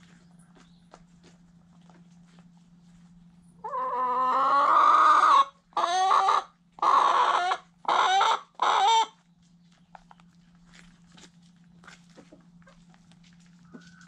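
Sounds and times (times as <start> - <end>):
chicken calling and squawking: 3.6 - 9.2.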